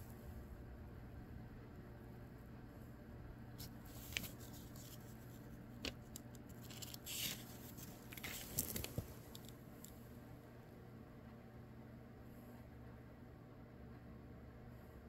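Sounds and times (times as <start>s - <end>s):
book page turning: 3.6s - 10.0s
paper crackling: 3.6s - 10.0s.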